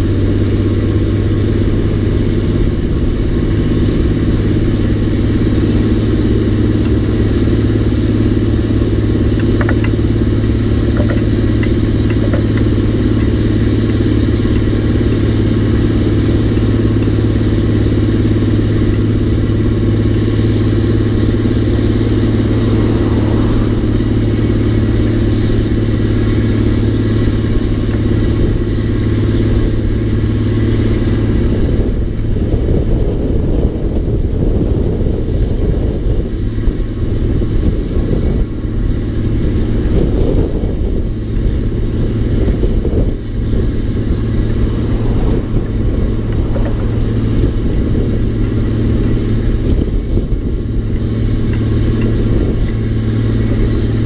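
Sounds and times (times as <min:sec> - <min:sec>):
diesel truck engine pulling: 0:00.0 - 0:54.0
light metal rattles: 0:35.0 - 0:54.0.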